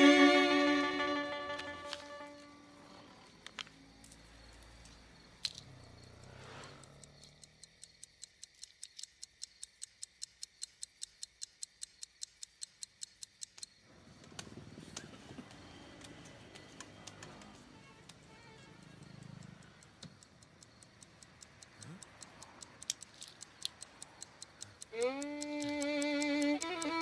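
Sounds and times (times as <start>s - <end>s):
mechanical watch ticking: 4.4s - 13.9s, 15.6s - 27.0s.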